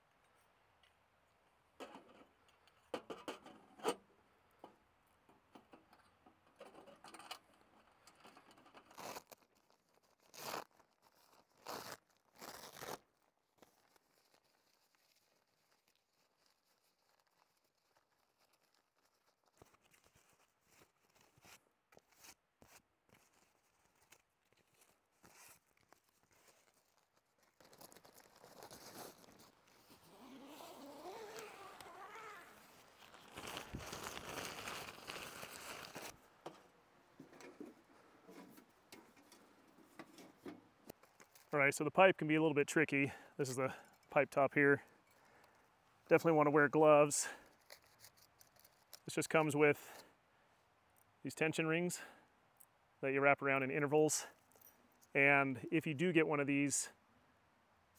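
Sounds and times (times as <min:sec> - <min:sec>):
tent fabric rustling: 0:08.9 - 0:36.2.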